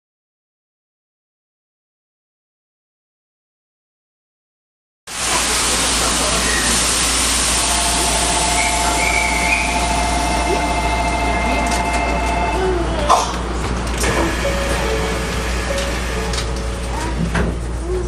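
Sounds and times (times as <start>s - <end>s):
train car hum and hiss: 5.1s - 18.0s
steady tones: 7.2s - 17.0s.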